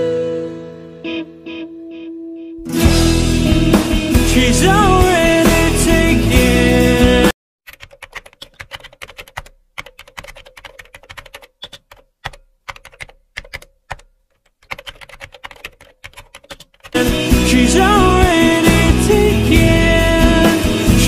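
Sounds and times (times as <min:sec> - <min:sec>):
music with singing: 0:00.0 - 0:01.4, 0:02.8 - 0:07.3, 0:17.0 - 0:21.0
typing on a computer keyboard: 0:07.7 - 0:17.0.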